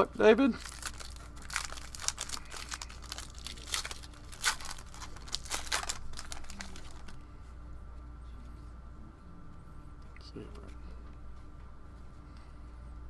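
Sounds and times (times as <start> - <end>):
card pack wrapper tearing and crinkling: 0.6 - 7.2.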